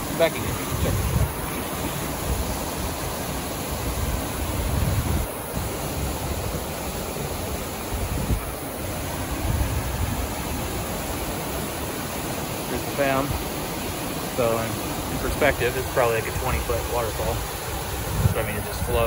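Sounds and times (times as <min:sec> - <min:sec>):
waterfall rushing: 0:00.0 - 0:19.0
low rumbles on microphone: 0:18.0 - 0:19.0.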